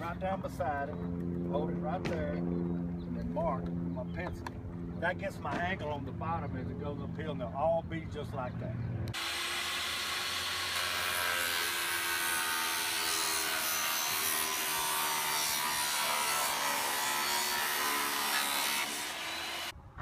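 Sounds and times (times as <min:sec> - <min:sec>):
table saw cutting vinyl: 0:09.2 - 0:19.7.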